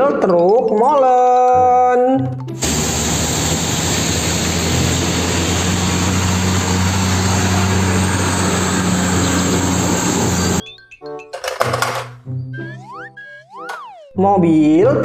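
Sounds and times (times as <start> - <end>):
diesel truck engine running: 2.6 - 10.6.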